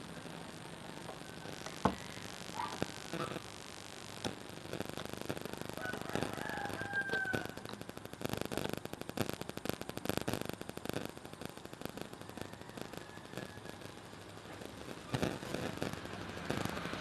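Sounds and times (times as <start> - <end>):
rooster crowing: 5.7 - 7.8, 12.3 - 14.1.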